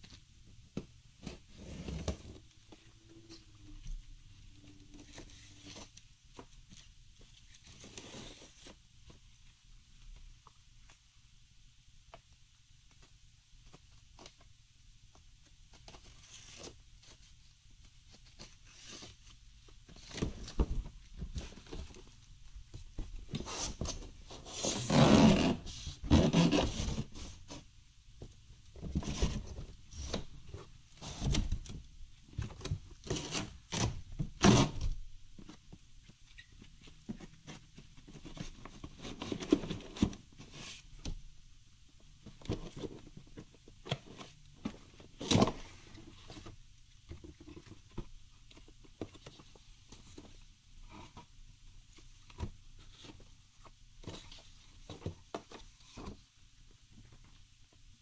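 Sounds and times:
cardboard scraping and rustling: 23.3s - 27.6s
foam packing rubbing: 23.4s - 27.4s.

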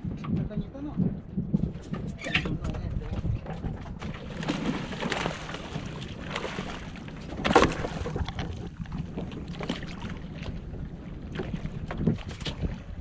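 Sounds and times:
fish thumping onto boat: 3.6s - 8.8s
fish splashing and thrashing: 3.7s - 13.0s.

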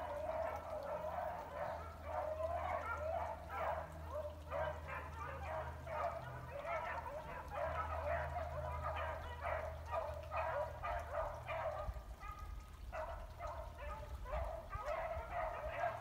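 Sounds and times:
pack of hounds baying: 0.0s - 16.0s.

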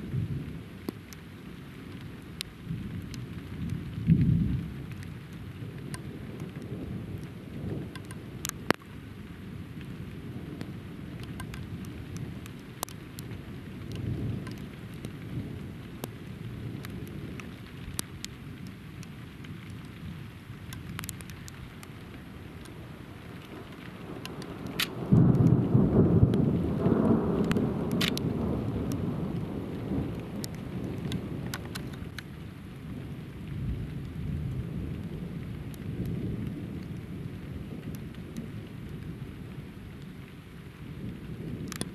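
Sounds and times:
steady rain: 0.0s - 41.9s
raindrop ticks: 0.2s - 41.9s
distant thunder rumbles: 23.5s - 32.2s
loud thunderclap: 24.7s - 31.7s.

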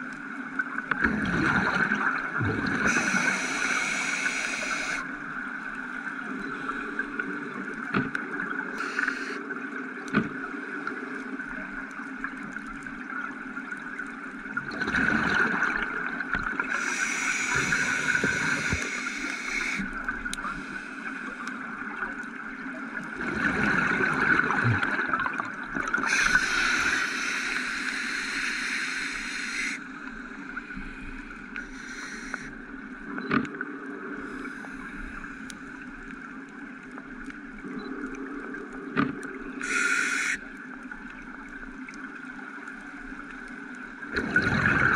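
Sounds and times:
exhaled bubbles gurgling: 0.7s - 9.4s, 11.4s - 20.8s, 21.6s - 27.8s, 44.0s - 44.9s
steady watery hiss: 2.0s - 11.2s, 14.9s - 22.4s, 25.8s - 32.9s, 34.1s - 37.4s, 39.2s - 43.8s
diver breathing through regulator: 2.8s - 5.0s, 8.8s - 9.4s, 16.7s - 19.9s, 26.1s - 29.8s, 31.6s - 32.5s, 39.6s - 40.4s.

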